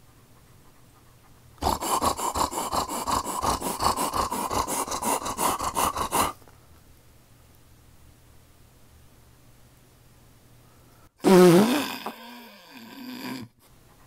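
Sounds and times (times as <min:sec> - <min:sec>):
man imitating dog panting: 0:00.0 - 0:06.4.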